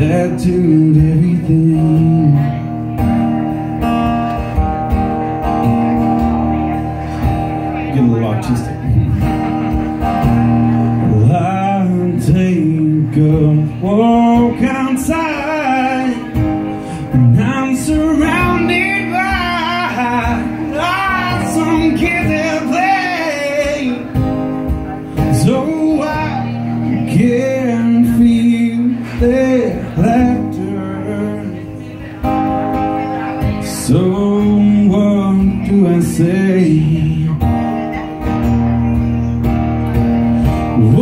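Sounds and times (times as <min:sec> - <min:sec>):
man singing: 0:00.0 - 0:03.0, 0:10.7 - 0:38.5, 0:40.4 - 0:41.0
acoustic guitar chords: 0:00.0 - 0:41.0.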